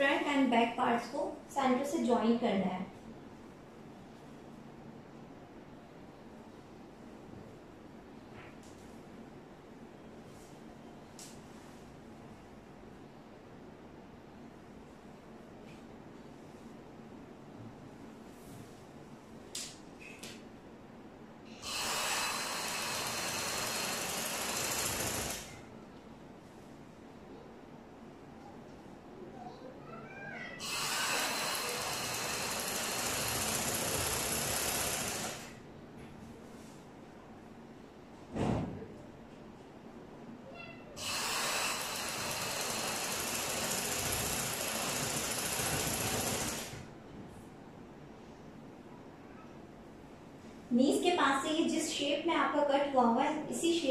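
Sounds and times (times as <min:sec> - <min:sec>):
sewing machine running: 0:21.6 - 0:25.6, 0:30.6 - 0:35.6, 0:41.0 - 0:46.9.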